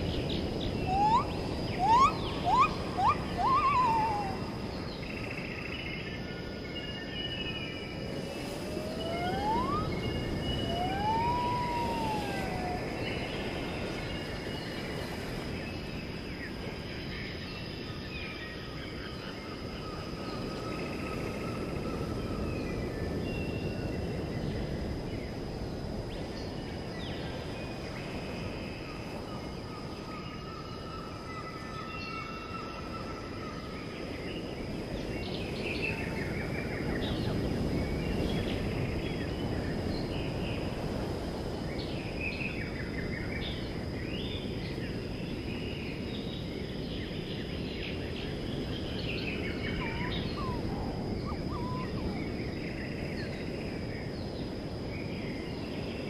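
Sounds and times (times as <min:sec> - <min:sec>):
birds chirping: 0:00.0 - 0:05.4, 0:08.1 - 0:13.6, 0:49.3 - 0:52.5
whistled bird call: 0:00.6 - 0:04.6, 0:08.6 - 0:13.4, 0:49.3 - 0:52.4
steady rushing noise: 0:07.9 - 0:15.6.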